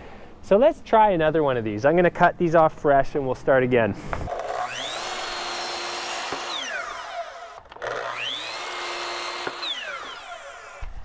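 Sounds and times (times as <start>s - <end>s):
miter saw motor whining: 4.3s - 11.0s
saw cutting wood: 4.3s - 11.0s.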